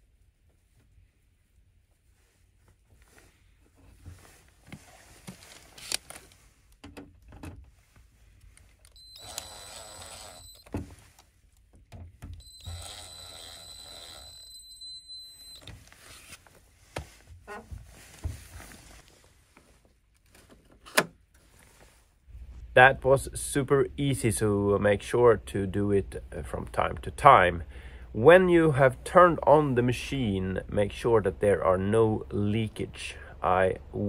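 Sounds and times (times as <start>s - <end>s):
cordless drill whine: 8.9s - 10.8s, 12.4s - 15.7s.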